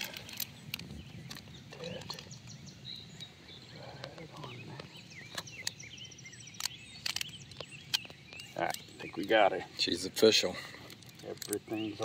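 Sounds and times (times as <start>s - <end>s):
small birds chirping and trilling: 0.0s - 12.0s
sharp clicks of tag: 6.5s - 9.1s.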